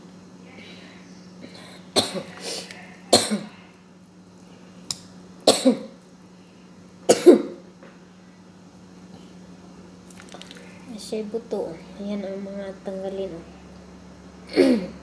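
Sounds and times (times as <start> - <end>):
person coughing: 3.1 - 3.6, 5.5 - 5.9, 7.1 - 7.6, 14.5 - 15.0.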